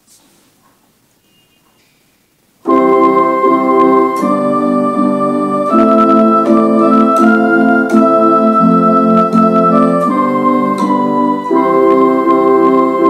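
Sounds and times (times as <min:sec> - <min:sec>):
organ playing sustained chords: 0:02.6 - 0:13.0.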